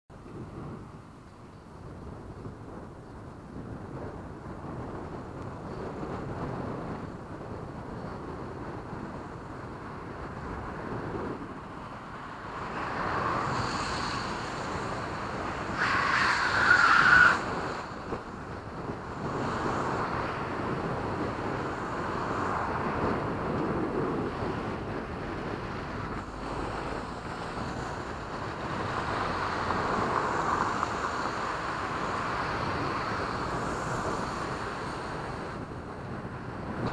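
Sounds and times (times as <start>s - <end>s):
passing traffic: 0.1s - 36.9s
wind on microphone: 0.1s - 36.9s
car tyres screeching on wet road: 12.2s - 18.4s, 19.1s - 20.5s, 25.8s - 35.5s.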